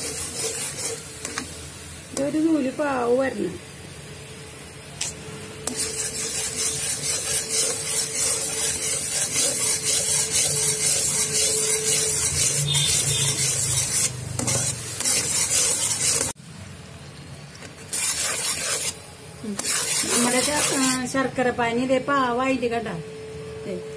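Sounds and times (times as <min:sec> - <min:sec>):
spatula scraping a metal pan: 0:00.0 - 0:01.5, 0:05.6 - 0:16.4, 0:17.9 - 0:19.0, 0:19.6 - 0:21.2
boiling syrup hissing: 0:00.0 - 0:04.4, 0:05.4 - 0:16.4.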